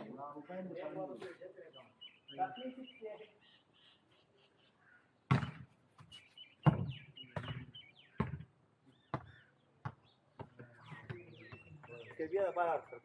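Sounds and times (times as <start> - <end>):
birds chirping: 0.0 - 13.0
volleyball hits: 5.3 - 5.7, 6.6 - 8.4.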